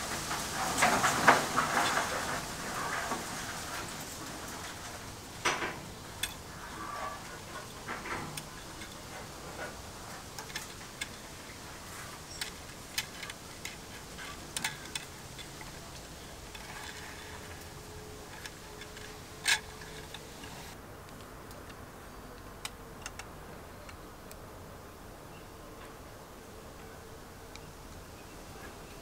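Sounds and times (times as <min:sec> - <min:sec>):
faint steady hiss: 0:00.0 - 0:29.0
wire clicking on metal terminals: 0:05.4 - 0:20.8.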